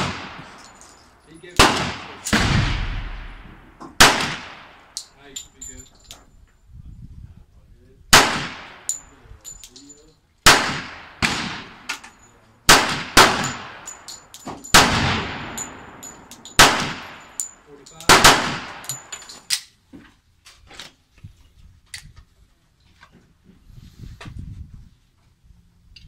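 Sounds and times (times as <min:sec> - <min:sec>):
pistol shots with echo: 0:00.0 - 0:00.6, 0:01.6 - 0:05.0, 0:08.1 - 0:09.0, 0:10.4 - 0:11.9, 0:12.7 - 0:14.1, 0:14.7 - 0:19.1.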